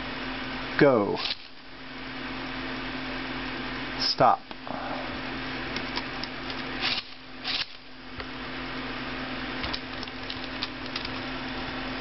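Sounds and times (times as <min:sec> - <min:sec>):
toy motors whirring: 0:01.2 - 0:01.5, 0:06.5 - 0:07.8.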